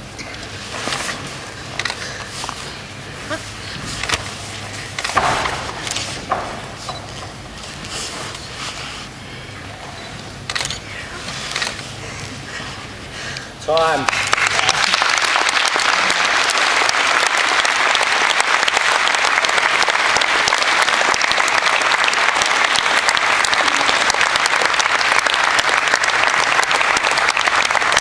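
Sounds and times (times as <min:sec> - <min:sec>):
crowd applauding: 0:13.7 - 0:28.0.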